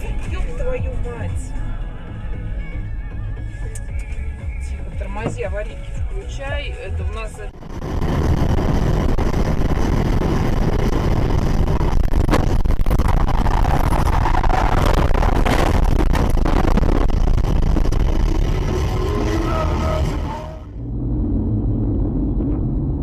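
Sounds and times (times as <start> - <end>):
car cabin rumble on rough dirt: 4.8 - 20.0.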